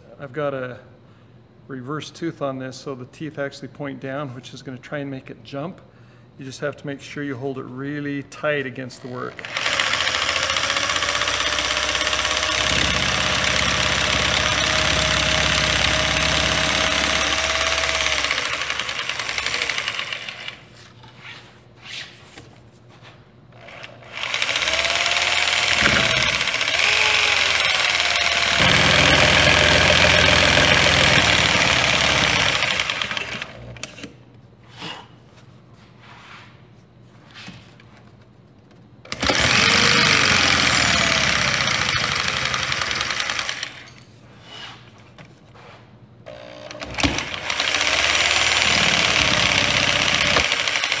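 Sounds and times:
jigsaw cutting paneling: 0:09.0 - 0:20.8, 0:23.6 - 0:34.1, 0:39.1 - 0:44.0, 0:46.3 - 0:51.0.

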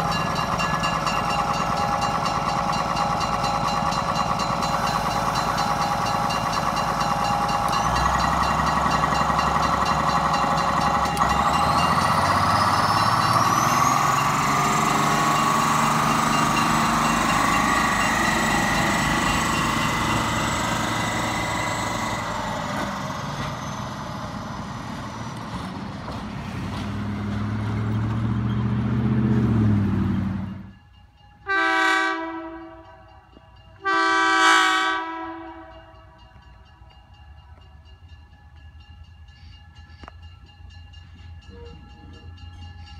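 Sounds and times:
railcar diesel engine: 0:00.0 - 0:42.9
train air horn blasts: 0:31.4 - 0:33.0, 0:33.8 - 0:36.0.

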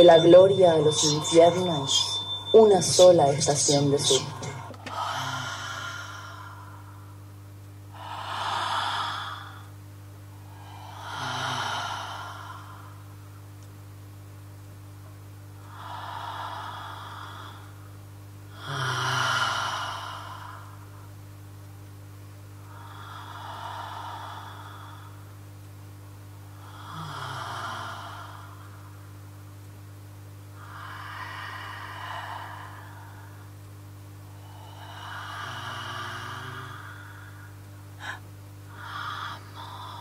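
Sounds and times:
low electrical hum: 0:00.0 - 0:40.0
person breathing slowly: 0:03.7 - 0:07.3, 0:07.9 - 0:09.8, 0:10.4 - 0:13.2, 0:15.6 - 0:17.9, 0:18.5 - 0:21.1, 0:22.7 - 0:25.3, 0:26.6 - 0:29.2, 0:30.6 - 0:40.0.

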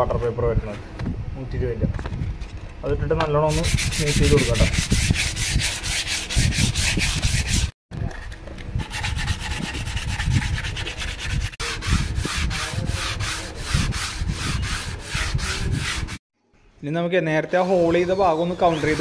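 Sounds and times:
sandpaper scraping wood: 0:03.5 - 0:07.8, 0:08.8 - 0:16.2, 0:17.6 - 0:19.0.

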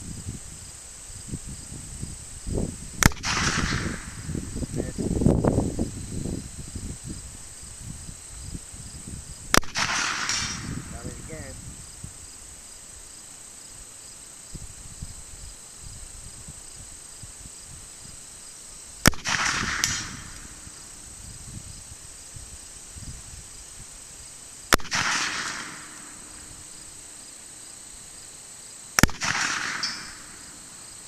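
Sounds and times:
insects trilling: 0:00.0 - 0:31.0
bullet striking steel target: 0:09.5 - 0:11.6, 0:19.0 - 0:20.6, 0:24.7 - 0:26.5, 0:29.0 - 0:30.6
revolver shots: 0:19.1 - 0:20.8, 0:24.7 - 0:26.5, 0:29.0 - 0:30.5.

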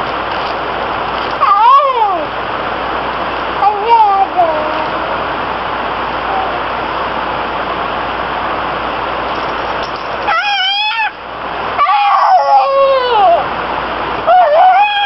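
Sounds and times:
steady hiss: 0:00.0 - 0:14.3
baby squealing: 0:10.2 - 0:11.2, 0:11.8 - 0:13.4.

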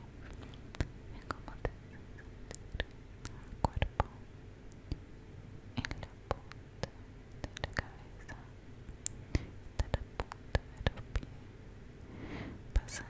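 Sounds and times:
soft whispering: 0:00.0 - 0:04.3, 0:05.8 - 0:08.6, 0:09.3 - 0:11.4, 0:12.2 - 0:13.0
wet mouth clicks: 0:00.3 - 0:04.0.

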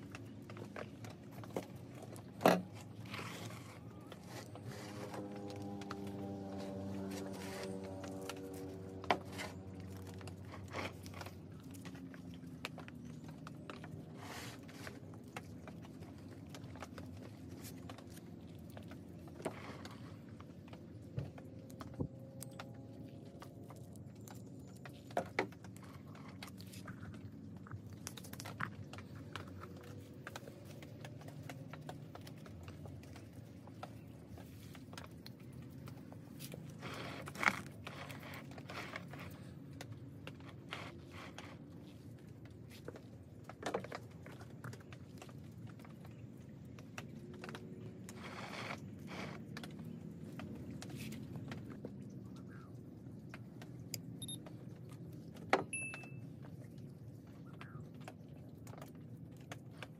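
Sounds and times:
hands working potting soil: 0:00.0 - 0:56.1.

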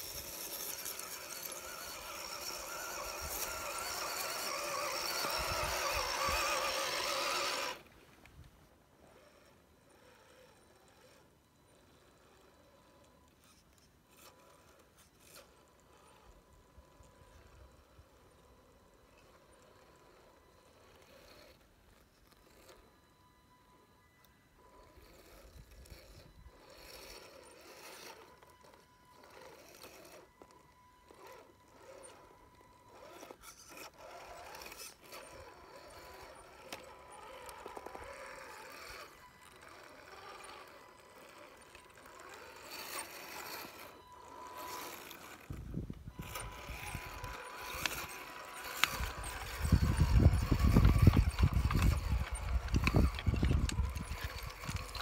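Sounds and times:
tyres scraping over rock: 0:00.0 - 0:07.8, 0:32.9 - 0:55.0
electric motor and gears whining: 0:00.0 - 0:55.0.

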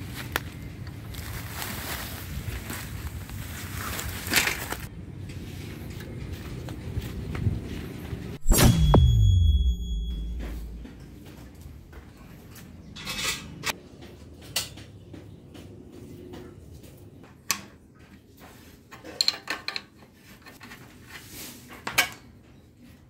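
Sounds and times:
rustling handling noises: 0:00.0 - 0:08.2.

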